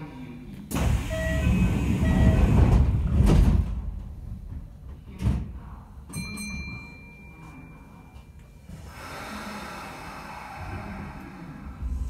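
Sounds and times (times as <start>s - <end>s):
train doors sliding shut: 0.7s - 4.1s
short beeps: 1.1s - 2.5s.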